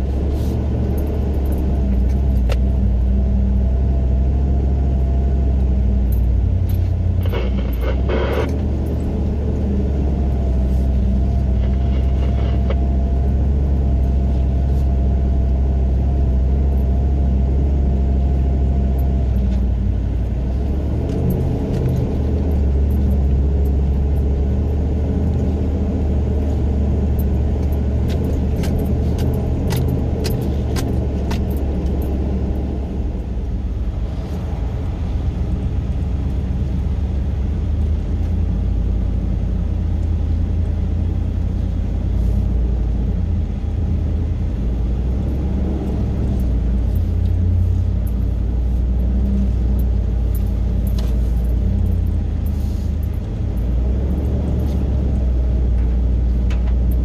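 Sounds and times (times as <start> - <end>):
vehicle engine running at low speed: 0.0 - 57.0
vehicle rattles and clicks: 0.0 - 57.0
faint whine: 6.0 - 15.4.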